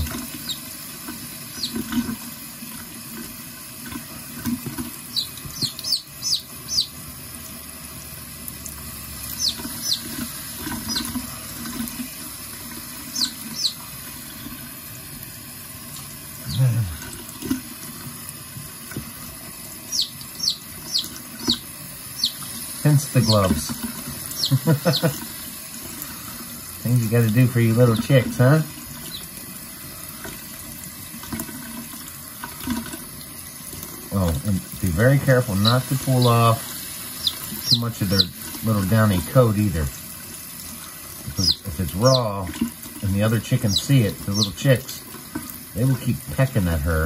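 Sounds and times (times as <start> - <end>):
faucet running into a sink: 0.0 - 47.0
chick peeping: 1.6 - 2.0, 5.1 - 7.0, 9.4 - 10.2, 10.8 - 11.2, 13.1 - 13.8, 19.9 - 23.7, 24.3 - 25.2, 37.2 - 38.4, 41.3 - 42.4, 43.5 - 44.9.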